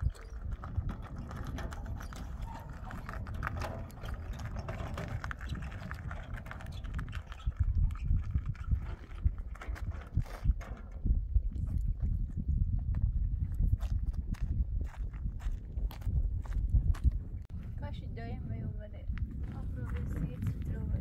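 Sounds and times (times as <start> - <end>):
metal wheelbarrow rattling: 0.0 - 11.1
footsteps on gravel: 13.6 - 17.2.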